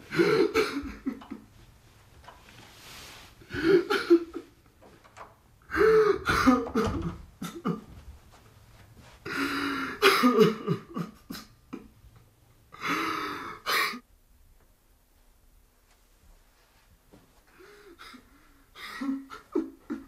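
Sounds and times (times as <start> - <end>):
person coughing and clearing throat: 0.1 - 1.4, 3.5 - 4.5, 5.8 - 7.9, 9.8 - 11.9, 12.8 - 14.0.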